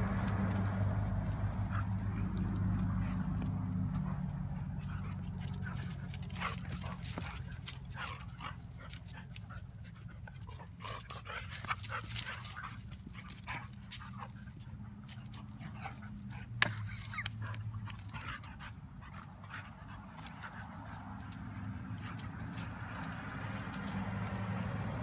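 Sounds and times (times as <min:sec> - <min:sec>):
dogs panting: 0:00.0 - 0:25.0
dogs growling and yipping: 0:01.7 - 0:21.2.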